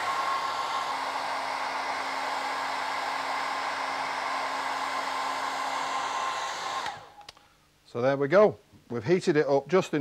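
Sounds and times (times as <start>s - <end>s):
hairdryer running: 0.0s - 7.4s.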